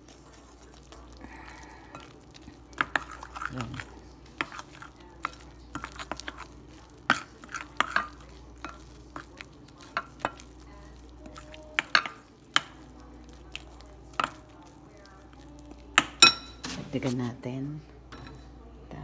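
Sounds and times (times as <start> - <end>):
spoon stirring batter: 0.0 - 17.4
spoon clinking on glass: 16.0 - 16.6.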